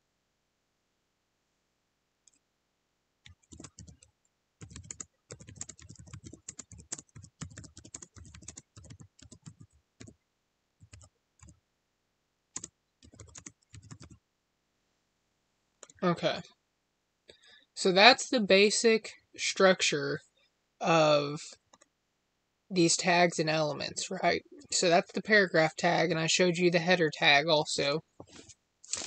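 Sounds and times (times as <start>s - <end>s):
typing on computer keyboard: 3.2s - 10.2s, 10.8s - 11.6s, 12.6s - 14.2s.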